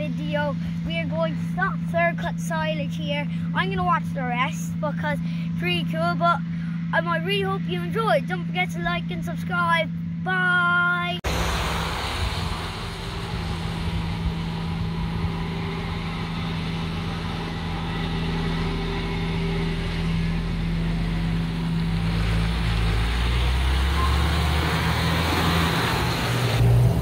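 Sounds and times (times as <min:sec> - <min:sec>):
tractor diesel engine rumbling: 0:00.0 - 0:27.0
car tyres hissing on wet road: 0:11.3 - 0:16.2, 0:21.8 - 0:27.0.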